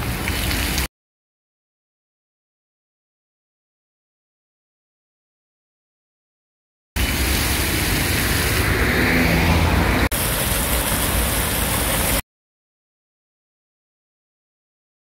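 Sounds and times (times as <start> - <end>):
fountain jets splashing: 0.0 - 0.9, 7.0 - 12.2
car driving past: 7.1 - 10.1.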